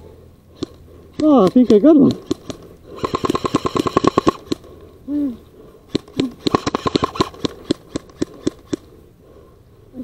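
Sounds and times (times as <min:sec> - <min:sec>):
airsoft gun firing: 0:00.6 - 0:04.7, 0:05.9 - 0:08.9.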